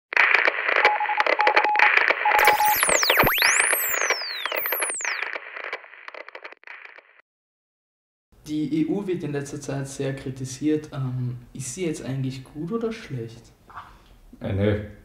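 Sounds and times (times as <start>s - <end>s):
crackling static hiss: 0.2s - 7.2s
whistle tones sweeping in pitch: 2.4s - 5.2s.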